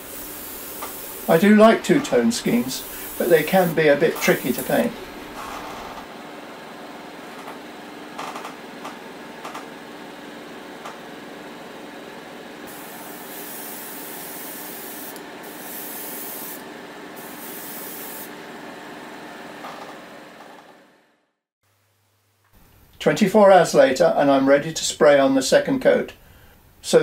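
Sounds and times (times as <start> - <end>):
spray paint hissing: 0.0 - 1.6, 2.5 - 4.9, 12.7 - 16.6, 17.2 - 18.3
steady mechanical hum: 0.0 - 21.2, 22.5 - 27.0.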